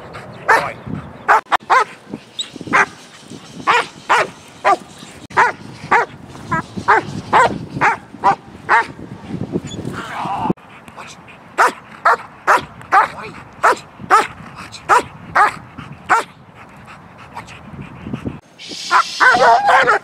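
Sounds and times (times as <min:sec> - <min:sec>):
dog barking loudly: 0:00.5 - 0:02.0, 0:02.7 - 0:02.9, 0:03.7 - 0:09.0, 0:11.6 - 0:16.3, 0:18.9 - 0:20.0.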